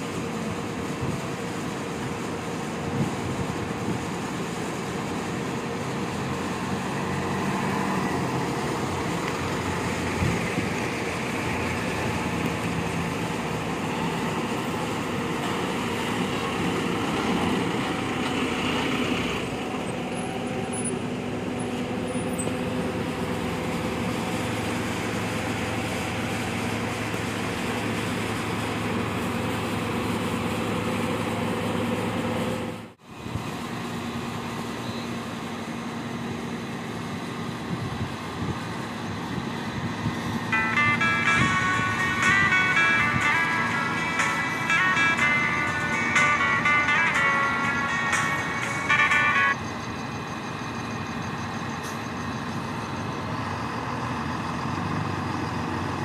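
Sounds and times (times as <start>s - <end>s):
bus diesel engine running: 0.0s - 56.0s
bus engine idling: 0.0s - 56.0s
traffic noise: 0.0s - 56.0s.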